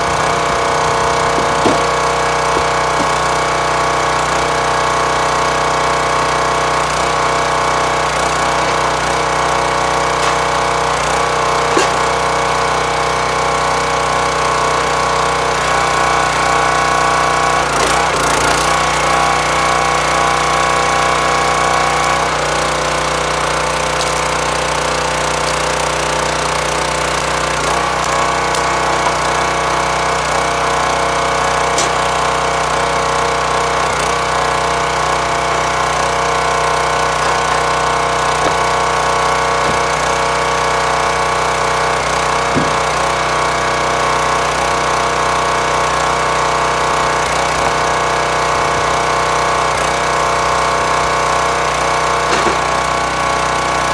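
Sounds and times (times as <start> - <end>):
small gas engine running: 0.0 - 53.9
wood knocking: 1.2 - 3.4, 11.7 - 12.2, 42.5 - 42.9.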